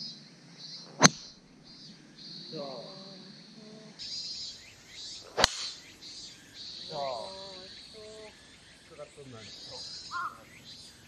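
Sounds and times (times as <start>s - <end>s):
golf driver striking ball: 1.0s - 1.3s, 5.4s - 5.8s.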